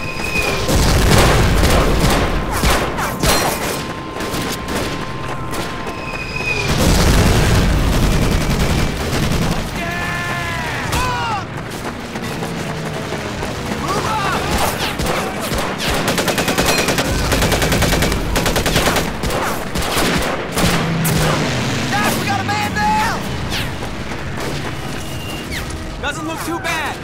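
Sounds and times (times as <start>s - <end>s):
rifle and machine-gun fire: 0.4s - 6.0s, 6.7s - 26.0s
heavy explosions: 0.4s - 12.1s, 12.7s - 26.1s
man shouting: 9.8s - 11.5s, 13.8s - 14.6s, 22.0s - 23.2s, 26.0s - 27.0s.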